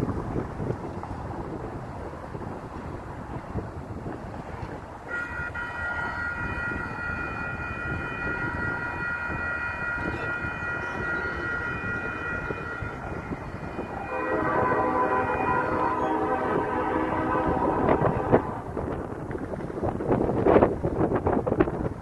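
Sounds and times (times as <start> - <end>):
wind rumble on microphone: 0.0 - 22.0
locomotive horn: 5.0 - 18.8
crossing bell ringing: 5.1 - 18.7.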